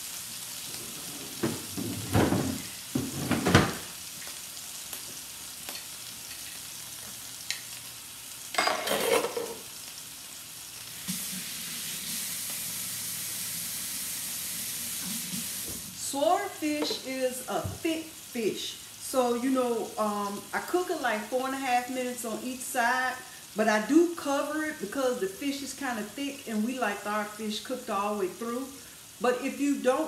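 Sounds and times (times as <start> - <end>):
fish sizzling in a skillet: 0.0 - 30.0
loud clattering knocks: 1.4 - 3.9.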